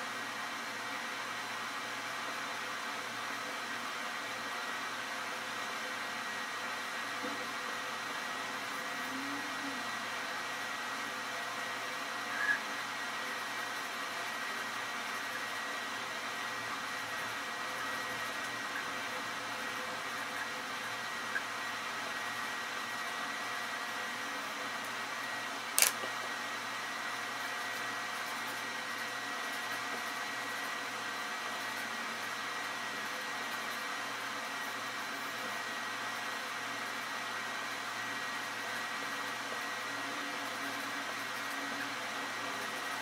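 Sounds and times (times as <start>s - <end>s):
sharp click: 25.8s - 26.1s.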